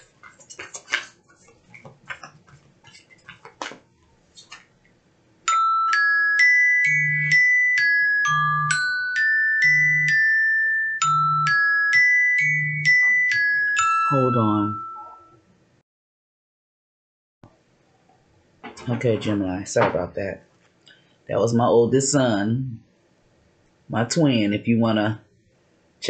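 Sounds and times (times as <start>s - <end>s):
cards being shuffled: 0.0s - 4.7s
marimba ringtone: 5.5s - 15.4s.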